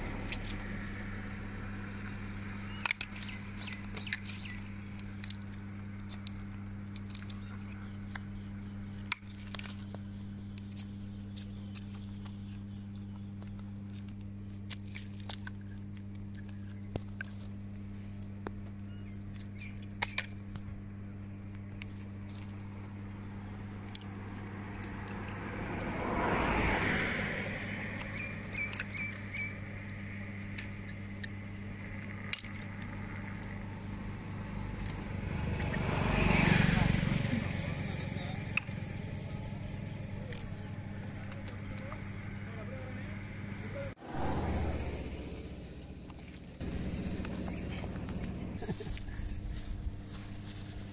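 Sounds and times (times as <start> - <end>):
steady low hum: 0.0 - 50.9
shells cracking with knife: 2.0 - 10.0, 27.9 - 33.7
rushing swell: 43.9 - 46.1.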